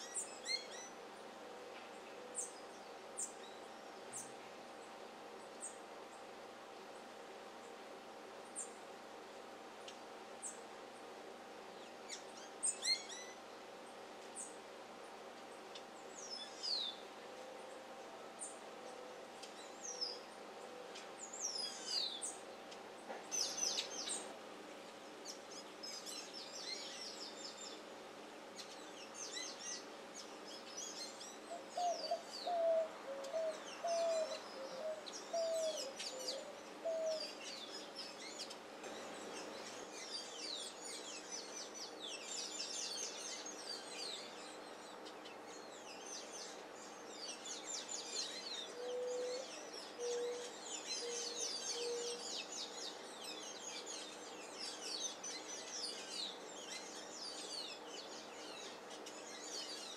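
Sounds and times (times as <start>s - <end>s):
small songbirds chirping: 0.0s - 59.9s
dove cooing: 31.6s - 37.4s, 48.7s - 52.3s.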